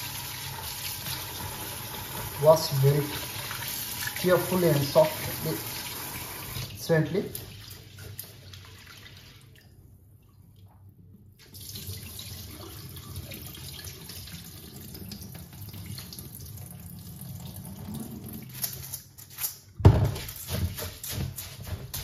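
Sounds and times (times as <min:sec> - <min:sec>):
water poured into sink splashing: 0:00.0 - 0:09.9, 0:11.4 - 0:18.6.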